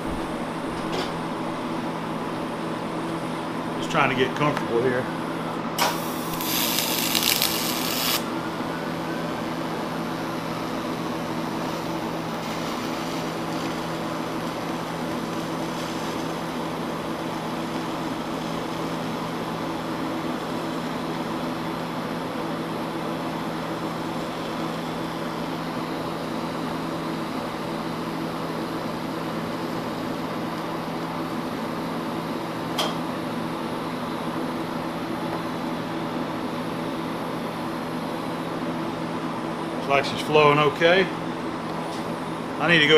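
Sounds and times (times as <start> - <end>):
welding machine hum: 0.0 - 42.9
welding arc-start buzz: 5.4 - 8.7, 9.4 - 29.8.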